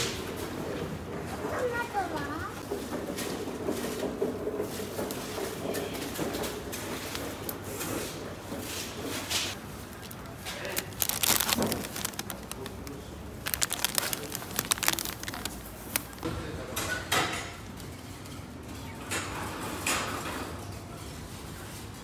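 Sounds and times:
crinkling and sharp clicks: 9.5s - 16.3s.

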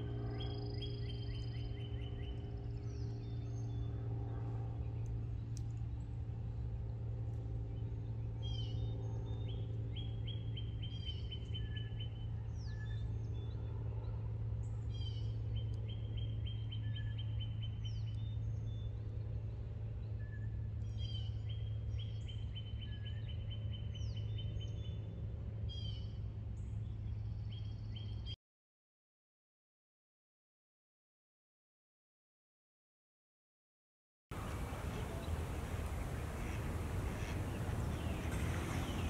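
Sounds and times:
low background hum: 0.0s - 28.4s, 34.3s - 39.0s
songbird trilled song: 7.8s - 13.6s, 14.9s - 19.1s, 20.1s - 24.9s, 34.4s - 39.0s
birds short falling calls: 34.4s - 39.0s.

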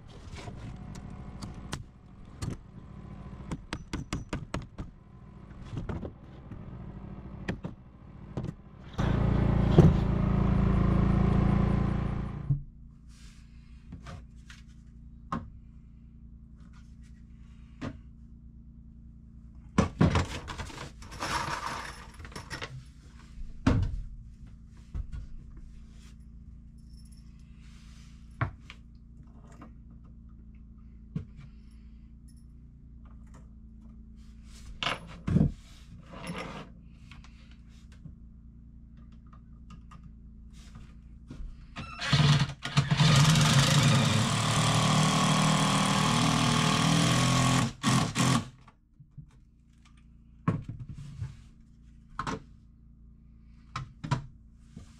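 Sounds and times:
low steady hum: 0.0s - 41.9s.

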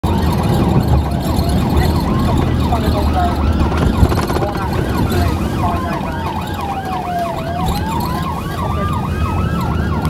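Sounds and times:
engine and road rumble: 0.0s - 10.0s
police sirens: 0.0s - 10.0s.

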